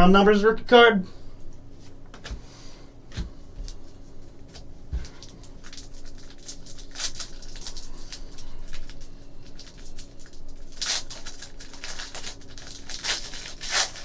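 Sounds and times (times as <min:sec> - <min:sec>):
trading cards crinkling and clicking: 0:03.1 - 0:14.0.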